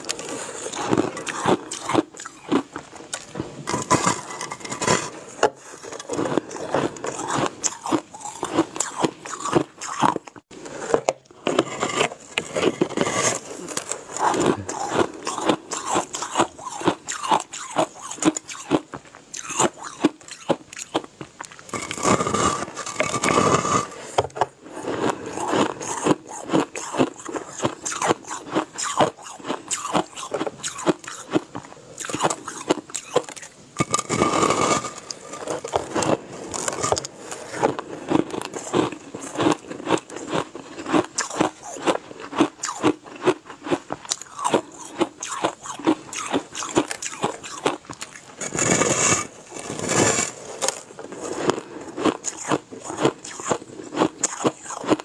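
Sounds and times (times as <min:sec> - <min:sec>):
ice being bitten and chewed: 0:00.0 - 0:55.0.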